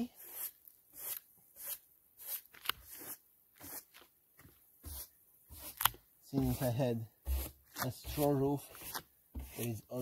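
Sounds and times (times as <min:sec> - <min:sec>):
hand brush sweeping straw: 0:04.8 - 0:10.0.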